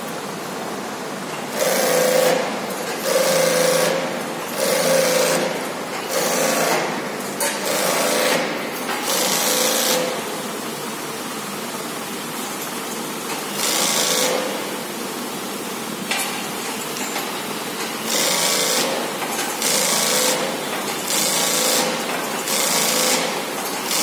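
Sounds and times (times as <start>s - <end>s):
sewing machine stitching: 18.0s - 24.0s.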